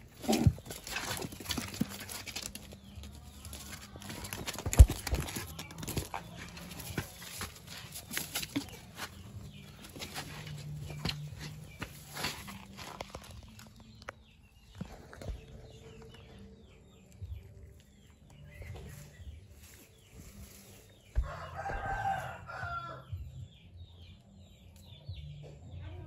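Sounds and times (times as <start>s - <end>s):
rooster crowing: 21.2s - 23.1s.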